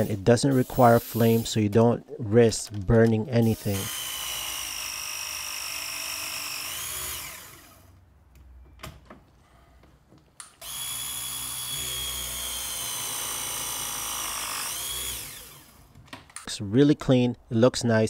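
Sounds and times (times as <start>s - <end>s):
press tool motor whine: 10.6s - 15.8s.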